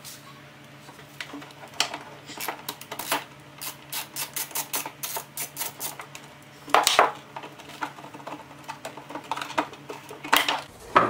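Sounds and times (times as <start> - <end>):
hand ratchet clicking: 2.4 - 6.0.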